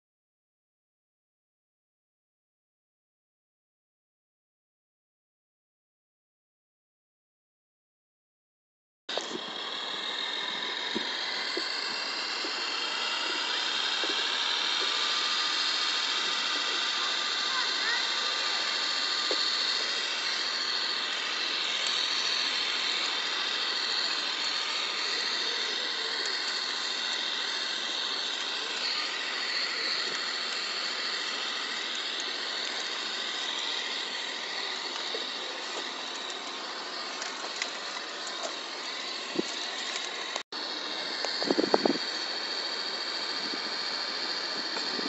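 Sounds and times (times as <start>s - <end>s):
rc truck motor whine and hiss: 9.1s - 45.0s.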